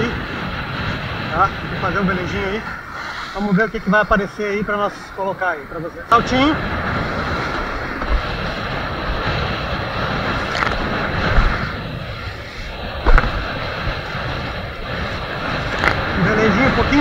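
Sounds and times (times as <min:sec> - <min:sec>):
water rushing past kiteboard: 0:00.0 - 0:17.0
wind buffeting microphone: 0:00.0 - 0:17.0
water slapping: 0:06.4 - 0:17.0.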